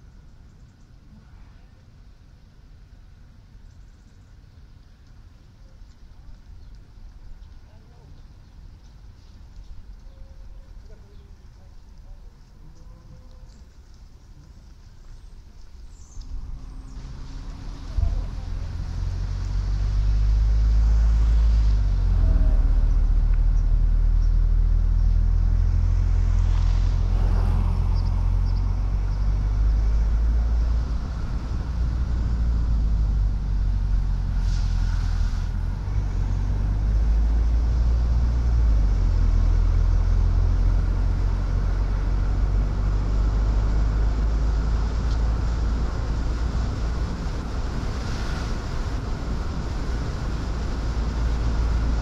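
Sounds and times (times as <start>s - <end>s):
car engine and road noise: 0.0s - 52.0s
brief hiss: 34.3s - 35.6s.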